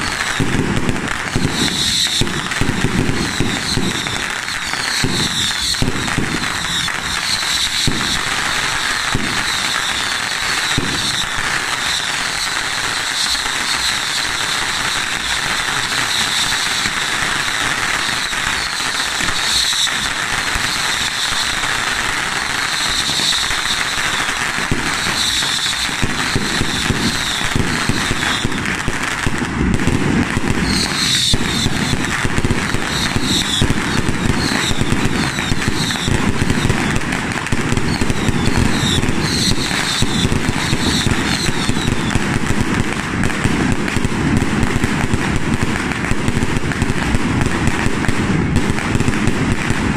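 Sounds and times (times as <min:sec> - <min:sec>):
fireworks crackling hiss: 0:00.0 - 0:49.9
high whistling tone: 0:03.4 - 0:11.4, 0:30.6 - 0:32.1, 0:37.8 - 0:42.2.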